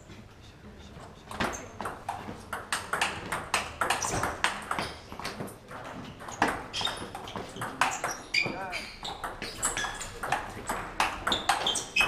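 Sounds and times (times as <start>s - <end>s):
table tennis ball clicking: 1.8s - 5.0s, 9.1s - 12.0s.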